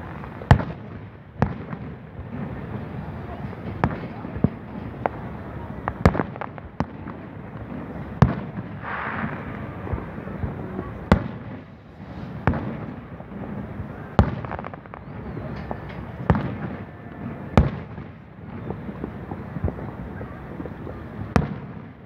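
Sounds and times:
firework pops and crackle: 3.5s - 13.6s, 14.2s - 22.0s
firework shells bursting: 8.2s - 12.9s.

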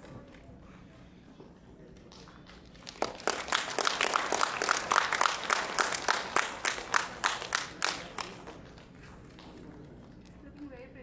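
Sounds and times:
audience applauding: 2.2s - 9.7s.

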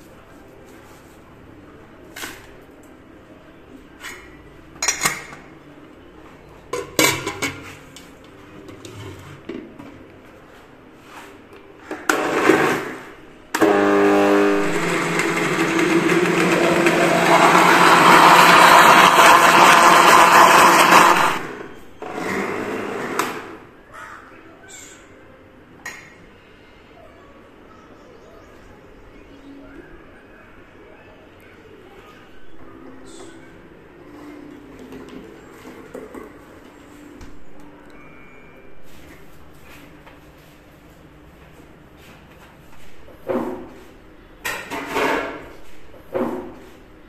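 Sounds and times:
electric blender running: 12.1s - 23.6s.

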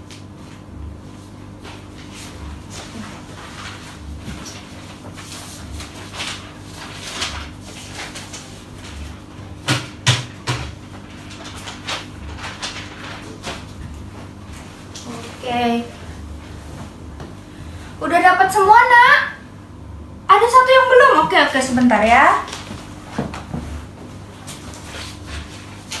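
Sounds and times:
steady low hum: 0.0s - 26.0s
paper rustling: 1.7s - 15.5s, 21.8s - 26.0s.

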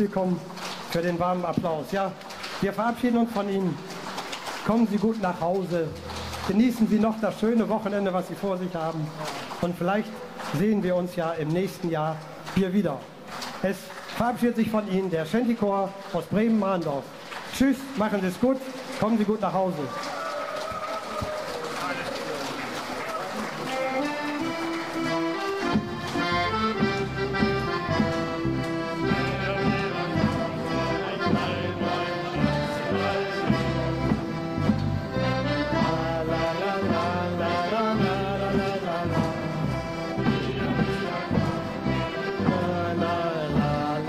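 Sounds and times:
accordion music: 22.8s - 44.0s.

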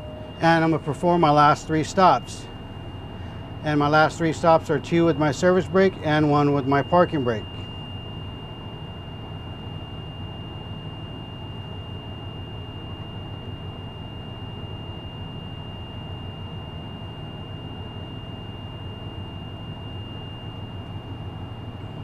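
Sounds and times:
diesel engine idling: 0.0s - 7.8s
air compressor running: 0.0s - 8.5s
high-pitched warning buzzer: 0.0s - 22.0s.

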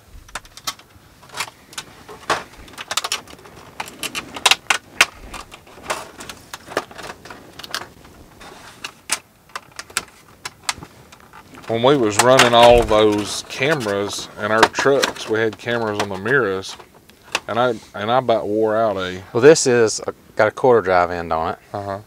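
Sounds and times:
tools and plastic packaging clattering: 0.2s - 17.5s.

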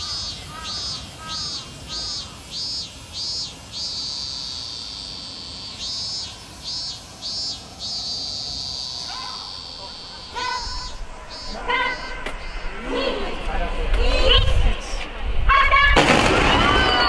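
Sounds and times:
insect calling in high pulses: 0.0s - 13.2s.

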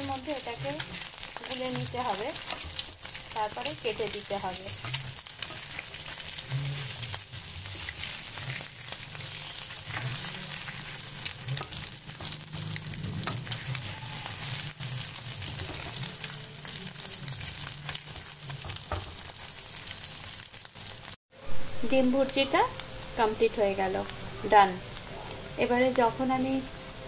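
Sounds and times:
eggs sizzling in oil: 0.0s - 27.0s
spatula scraping a pan: 0.4s - 16.8s.

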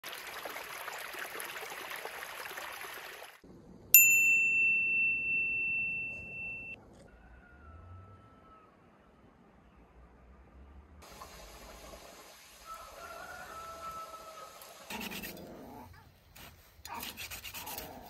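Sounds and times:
bright ding: 4.0s - 6.8s.

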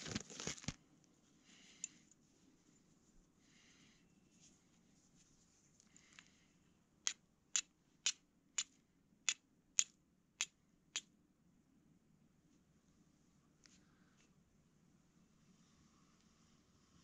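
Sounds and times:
soft handling noise: 4.1s - 6.4s.

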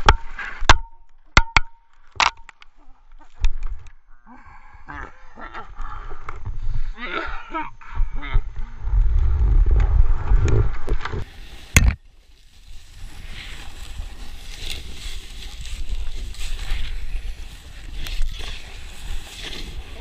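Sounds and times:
wind buffeting microphone: 8.0s - 12.0s
snowboard sliding over snow: 8.9s - 20.0s.

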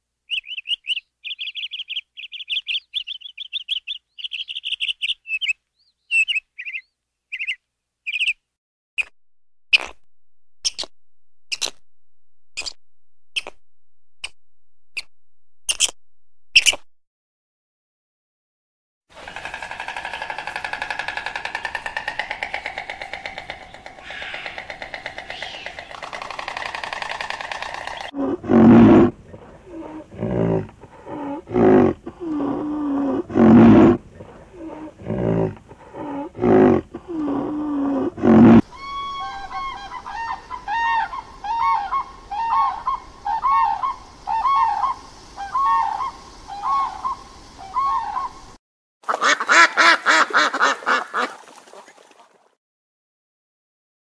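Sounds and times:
crane calling: 19.2s - 32.8s, 38.6s - 48.6s
heron croaking: 19.2s - 40.6s
shelduck honking: 24.0s - 24.6s, 49.1s - 51.3s.

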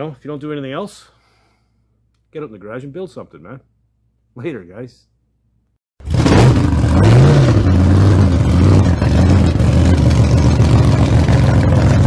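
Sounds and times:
car engine revving: 6.0s - 12.0s.

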